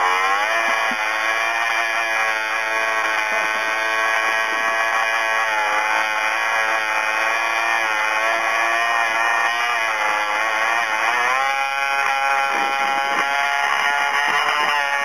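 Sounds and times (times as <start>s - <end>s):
two-stroke snowmobile engine running: 0.0s - 15.0s.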